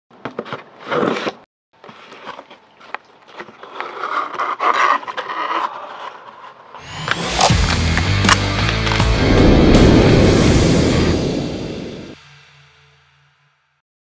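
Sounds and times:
blade scraping cardboard: 0:00.2 - 0:09.0.

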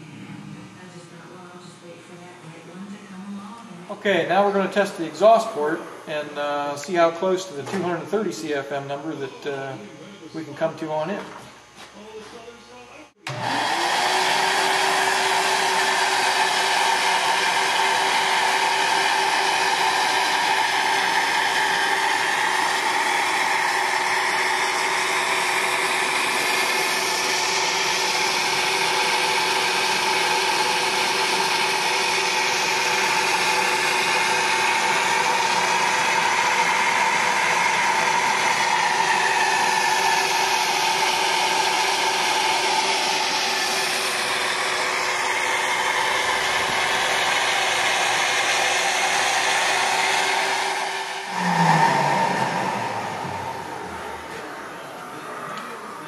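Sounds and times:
flow bench blower whine: 0:00.0 - 0:56.0
rush of air: 0:50.7 - 0:54.7.

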